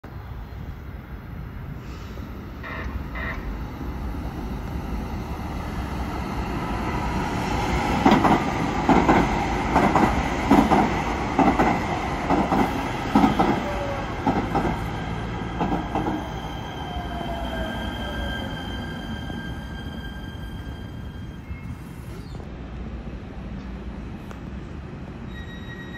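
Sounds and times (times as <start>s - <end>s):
train wheels clacking on track: 7.9s - 16.3s.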